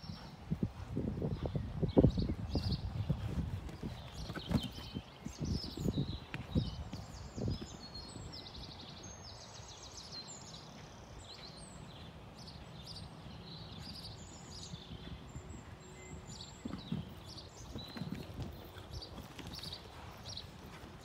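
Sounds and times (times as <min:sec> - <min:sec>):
horse hoofbeats on sand: 0:00.0 - 0:08.0, 0:14.7 - 0:21.0
small birds chirping: 0:00.0 - 0:21.0
low background noise: 0:03.2 - 0:21.0.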